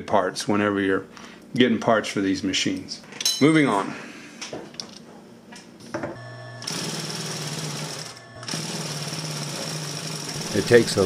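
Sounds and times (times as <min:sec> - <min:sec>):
sewing machine stitching: 0:06.6 - 0:11.0.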